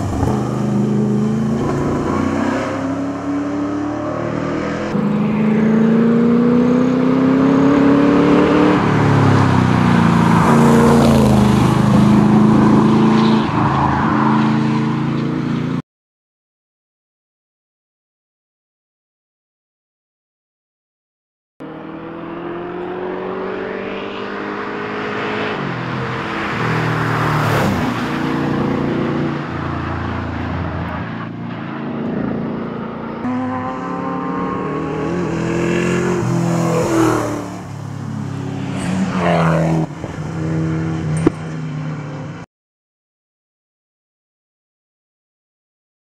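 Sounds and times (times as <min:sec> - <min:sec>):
car engine accelerating hard: 0:00.0 - 0:13.6, 0:21.6 - 0:42.2.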